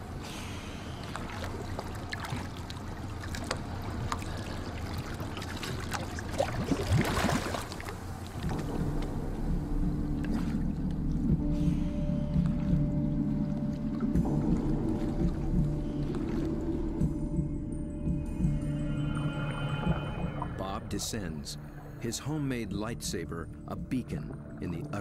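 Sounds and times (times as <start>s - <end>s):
low steady hum: 0.0s - 25.0s
water sloshing around boat: 0.8s - 25.0s
bubbling splash: 1.3s - 8.5s.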